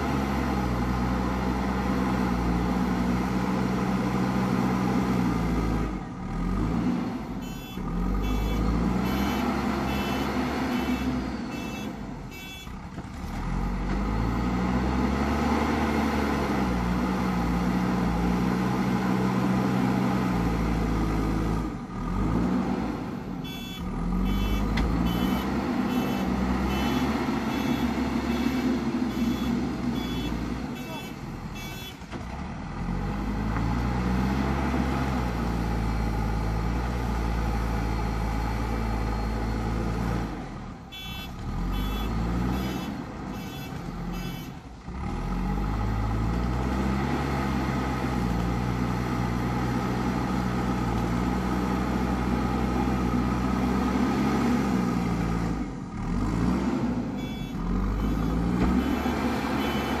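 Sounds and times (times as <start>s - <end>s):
diesel engine working under load: 0.0s - 60.0s
reversing alarm beeping: 7.4s - 12.7s, 23.4s - 32.0s, 40.9s - 44.6s, 57.2s - 60.0s.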